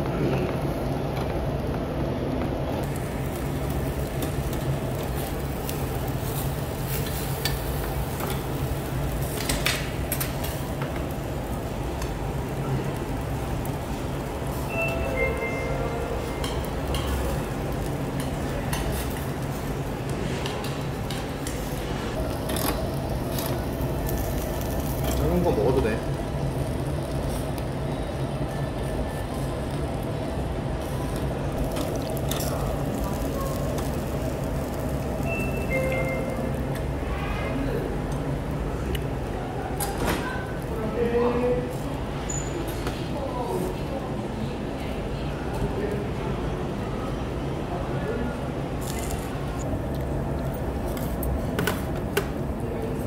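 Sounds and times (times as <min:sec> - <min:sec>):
meat sizzling on a grill: 0:02.9 - 0:15.4, 0:21.6 - 0:36.8
dishes clinking: 0:16.2 - 0:17.4
metal tongs clicking on grate: 0:16.4 - 0:17.3.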